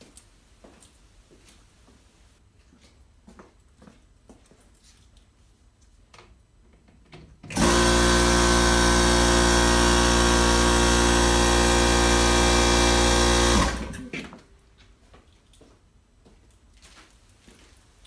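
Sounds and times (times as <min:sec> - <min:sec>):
air compressor running: 0:07.5 - 0:14.2.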